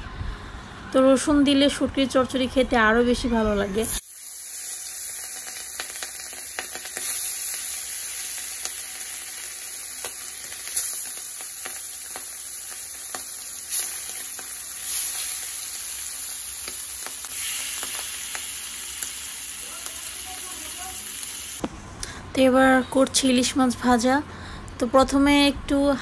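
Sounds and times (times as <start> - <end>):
fish sizzling in hot oil: 4.0 - 21.6.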